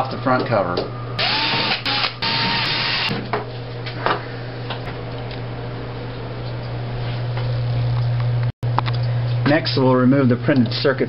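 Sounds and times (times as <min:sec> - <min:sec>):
steady low hum: 0:00.0 - 0:11.0
cordless screwdriver whirring: 0:01.2 - 0:03.1.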